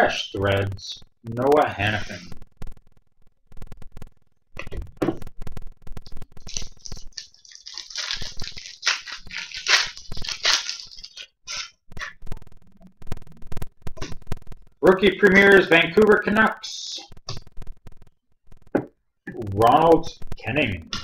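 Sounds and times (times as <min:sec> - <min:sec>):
foil wrapper crinkling: 0:06.0 - 0:12.1.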